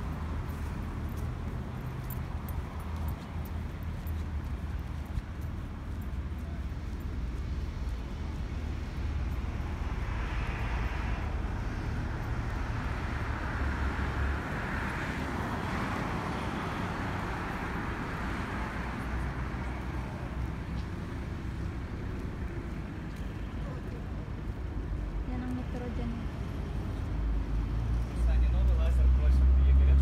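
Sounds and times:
traffic rumble: 0.0s - 30.0s
vehicle passing: 7.4s - 24.6s.

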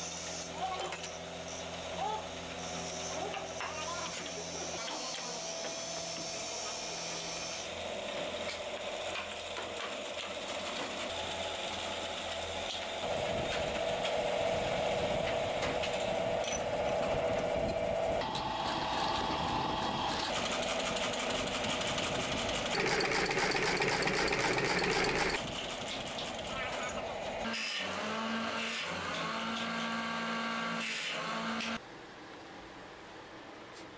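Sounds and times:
tufting machine clattering: 22.6s - 26.5s.

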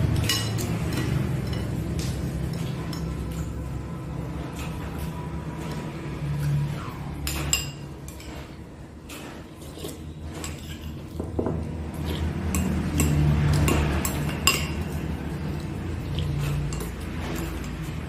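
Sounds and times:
spoon clinking against ceramic bowl: 0.2s - 3.6s, 12.5s - 15.6s.

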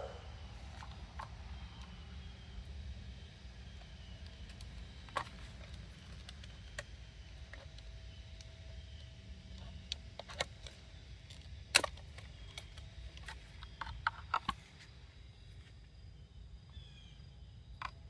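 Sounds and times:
plastic parts clicking together: 9.6s - 14.9s.

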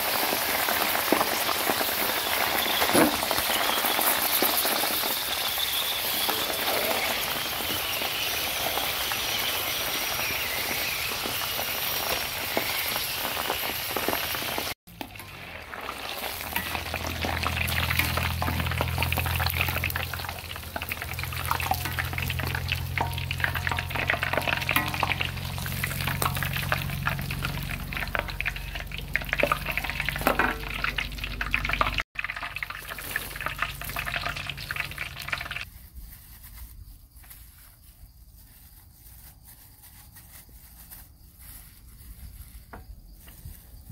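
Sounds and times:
oil sizzling and bubbling: 0.0s - 35.7s
metal ladle clicking on pan: 20.8s - 27.4s.

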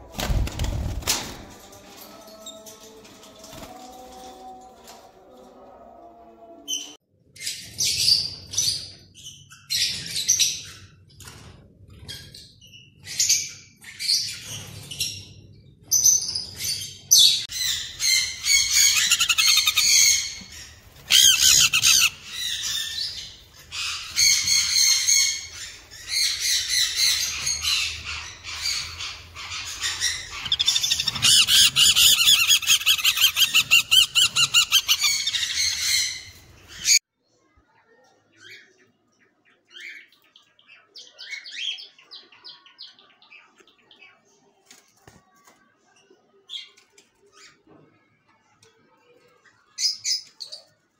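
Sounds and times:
parrots squawking and chirping: 17.4s - 37.0s.

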